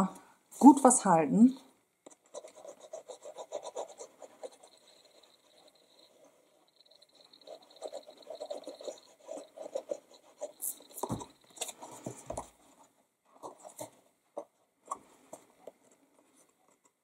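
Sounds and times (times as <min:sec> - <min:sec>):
glue sponge rubbing on cardstock: 0:02.2 - 0:11.9.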